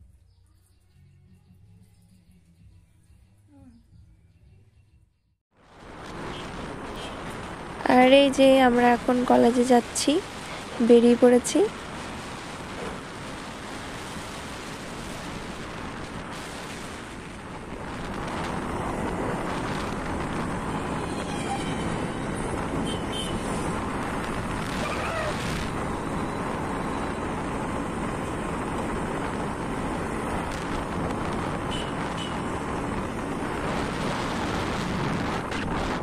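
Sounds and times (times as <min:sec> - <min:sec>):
road noise: 0:05.5 - 0:36.0
wind on microphone: 0:05.8 - 0:36.0.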